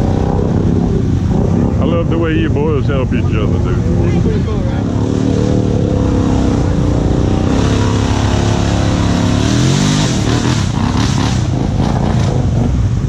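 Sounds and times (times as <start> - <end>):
quad engine revving: 3.4 - 13.0.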